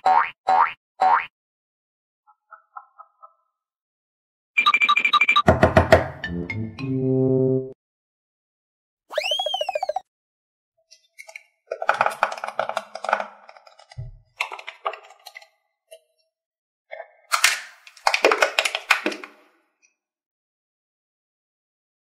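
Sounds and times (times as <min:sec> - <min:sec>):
wobbling whistle sound effect: 0:09.1 - 0:10.1.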